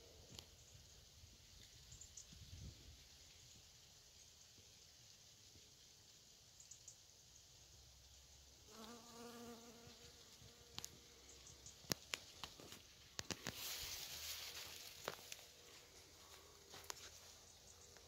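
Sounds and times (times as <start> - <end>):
honeybee buzzing: 8.7 - 11.0
short rustle: 12.1 - 17.9.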